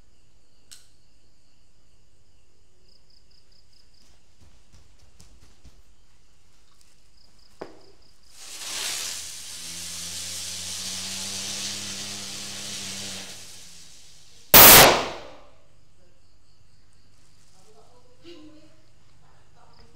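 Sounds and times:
firework hissing and whirring: 8.2s - 15.4s
firework bang: 14.6s - 15.4s.

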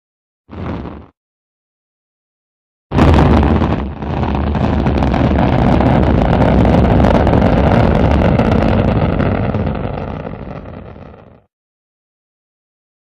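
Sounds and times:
rocket engine roaring: 2.9s - 11.5s.

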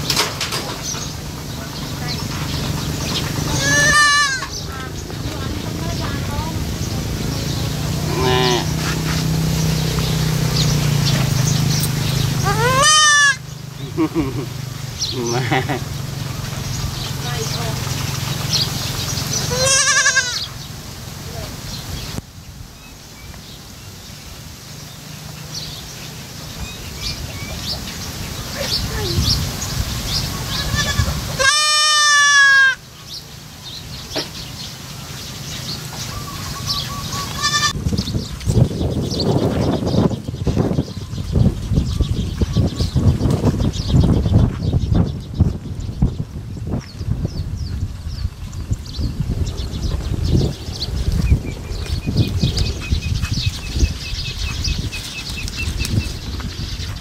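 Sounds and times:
goat kid bleating: 3.5s - 4.8s, 8.1s - 8.8s, 12.4s - 13.4s, 19.5s - 20.5s, 30.4s - 32.8s, 37.2s - 37.8s.

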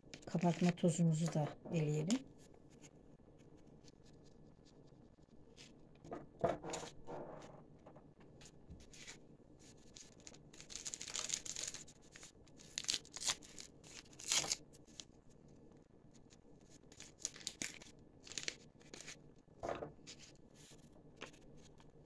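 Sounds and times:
paper sachets tearing: 10.6s - 11.8s, 12.6s - 14.6s, 17.0s - 18.6s.

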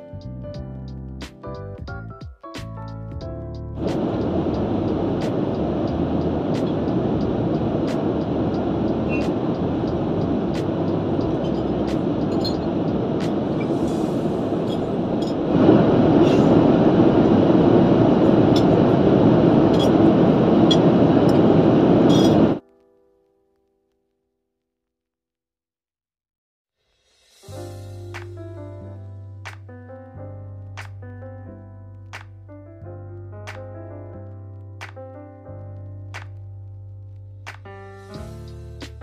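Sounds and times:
airliner cabin rushing hum: 3.8s - 22.6s.

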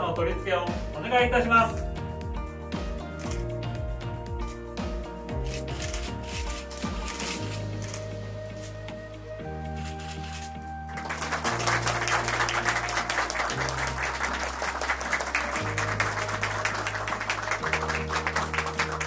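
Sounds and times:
background music: 0.0s - 19.0s
applause: 10.9s - 19.0s.

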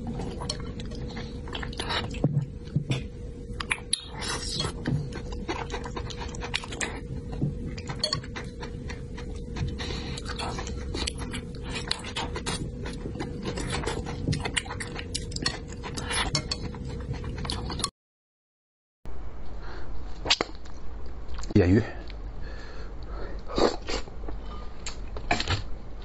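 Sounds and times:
low hum: 0.0s - 17.9s.

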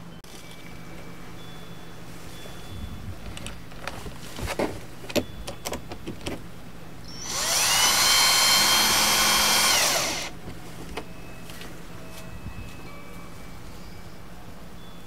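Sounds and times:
power drill driving screw: 7.2s - 10.3s.

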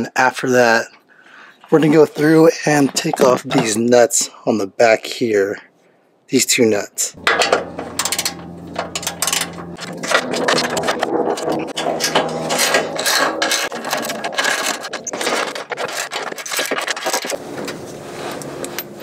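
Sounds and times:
metal tools clinking and scraping: 7.2s - 17.4s.

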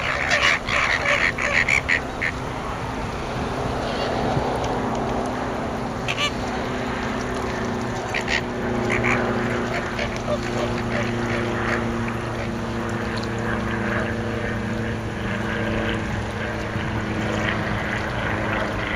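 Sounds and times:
flamingos honking: 0.0s - 2.8s, 3.7s - 4.6s, 5.9s - 12.7s
steady low hum: 0.0s - 18.9s.

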